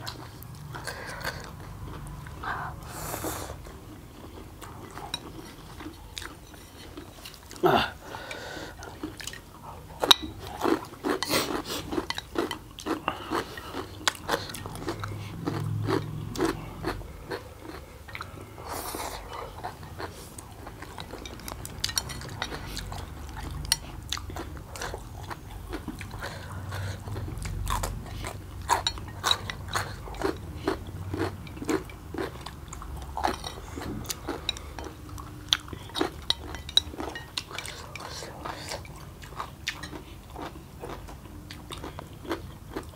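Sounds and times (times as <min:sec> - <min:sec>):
people chewing and slurping noodles: 0:00.0 - 0:42.9
chopsticks clicking against plates: 0:20.6 - 0:24.9, 0:33.2 - 0:39.0.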